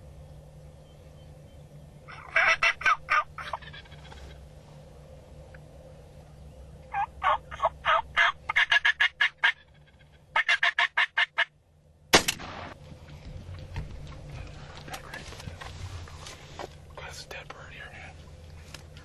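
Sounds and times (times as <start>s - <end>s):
turkey gobbling: 2.1s - 4.4s, 6.9s - 11.6s
turkey yelping: 2.1s - 4.4s, 6.9s - 11.5s
gunshot echoing: 12.1s - 12.8s.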